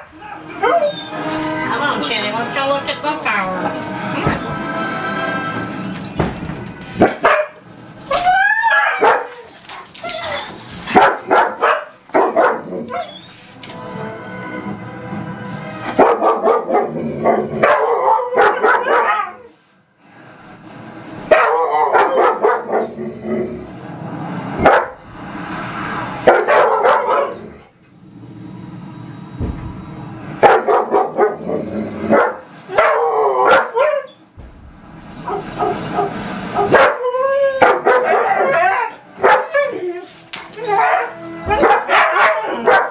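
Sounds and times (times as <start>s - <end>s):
dogs howling: 0.0s - 1.4s, 8.1s - 13.4s, 16.0s - 19.6s, 21.3s - 23.7s, 26.2s - 27.6s, 30.4s - 34.2s, 35.2s - 42.9s
dogs barking and yipping: 0.0s - 1.5s, 7.0s - 7.6s, 8.4s - 13.5s, 15.9s - 19.6s, 21.3s - 23.0s, 24.6s - 25.0s, 26.2s - 27.6s, 30.4s - 31.5s, 32.1s - 34.3s, 35.2s - 42.9s.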